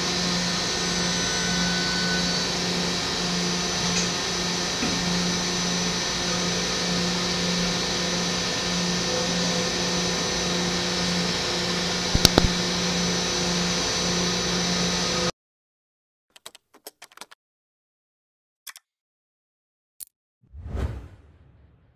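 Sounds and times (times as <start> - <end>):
machine hum and high whine: 0.0 - 15.3.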